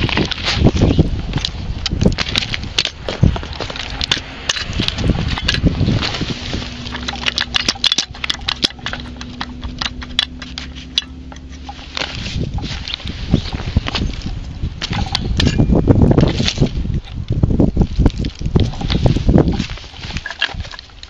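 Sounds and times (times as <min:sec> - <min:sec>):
metal clicks and knocks: 0:01.4 - 0:13.0, 0:13.9 - 0:17.2.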